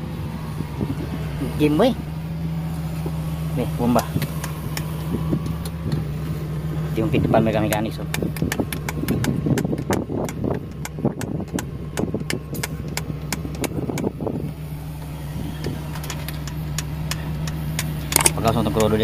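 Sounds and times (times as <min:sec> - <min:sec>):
diesel engine idling: 0:00.0 - 0:19.0
sharp clicks and taps: 0:07.6 - 0:14.1, 0:15.6 - 0:19.0.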